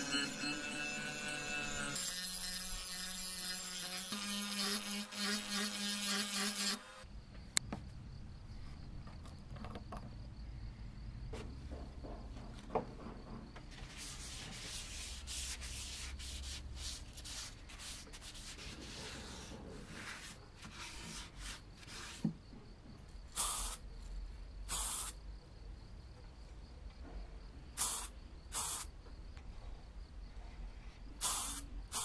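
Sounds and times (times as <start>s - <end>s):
spray paint hissing: 23.3s - 23.8s, 24.7s - 25.2s, 27.8s - 28.9s, 31.2s - 32.0s.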